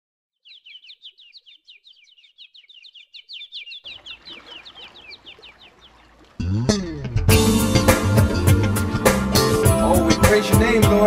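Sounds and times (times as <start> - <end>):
bird chirping: 0.3 - 6.3
music: 6.4 - 11.0.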